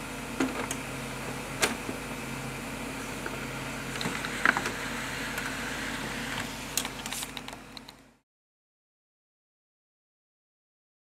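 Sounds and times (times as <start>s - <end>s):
printer humming: 0.0s - 8.2s
paper crackling: 6.8s - 7.6s.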